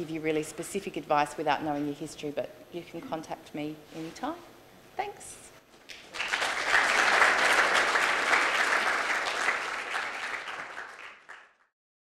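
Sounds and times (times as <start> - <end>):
audience applauding: 5.9 - 11.7.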